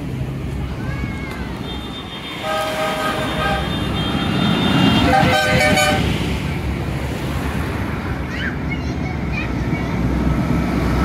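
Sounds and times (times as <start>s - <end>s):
tractor horn toots: 1.7s - 6.2s
lower-pitched horn: 2.4s - 6.1s.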